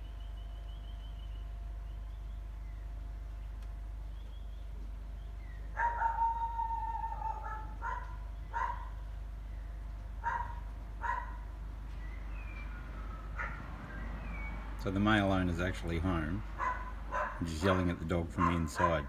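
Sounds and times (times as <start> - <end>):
dog barking: 5.8 - 9.0, 10.2 - 11.4, 13.4 - 13.6, 16.6 - 19.0.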